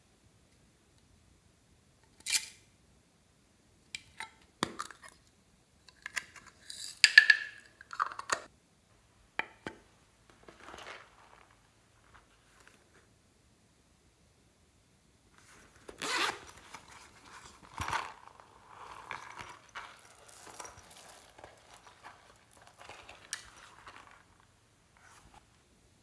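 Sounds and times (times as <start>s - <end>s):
soft handling rustles: 9.8s - 13.1s, 15.3s - 25.7s
pencil case zipper pulled: 15.8s - 24.2s.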